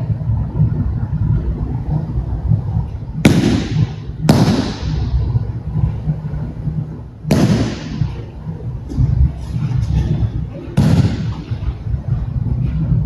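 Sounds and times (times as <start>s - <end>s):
steady low rumble: 0.0s - 13.0s
echoing slaps on mat: 3.2s - 5.2s, 7.3s - 8.2s, 10.8s - 11.6s.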